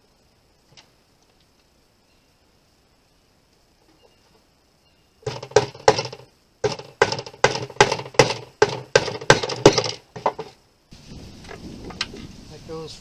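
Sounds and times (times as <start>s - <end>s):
hammer blows on wood: 5.2s - 10.5s.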